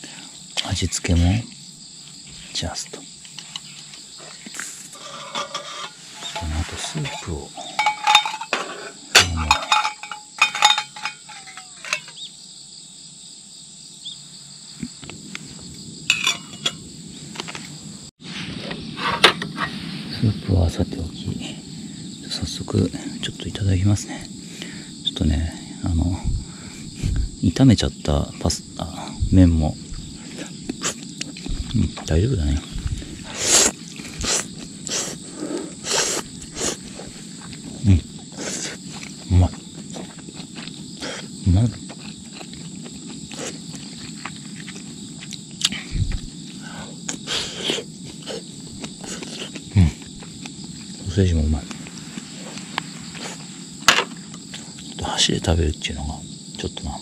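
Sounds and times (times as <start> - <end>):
insects chirring: 0.0 - 57.0
metal cookware clinking: 5.0 - 12.2, 16.1 - 16.8
person slurping noodles: 32.9 - 36.8.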